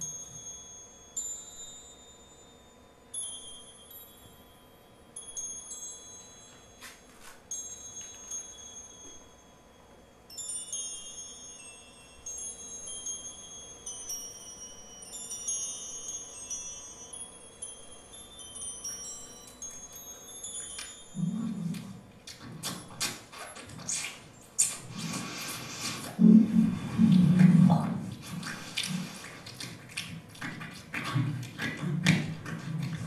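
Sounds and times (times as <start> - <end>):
chimes tinkling: 0.0 - 22.2.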